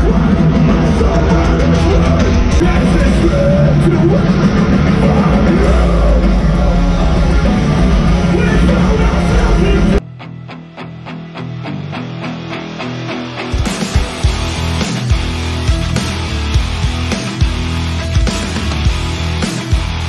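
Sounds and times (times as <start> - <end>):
person singing: 0.0 - 10.0
electric guitars: 0.0 - 20.0
live rock music: 0.0 - 20.0
picked guitar notes: 0.0 - 20.0.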